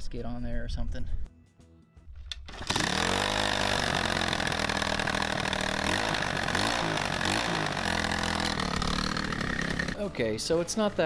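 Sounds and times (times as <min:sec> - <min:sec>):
dirt bike engine idling: 0:02.9 - 0:11.0.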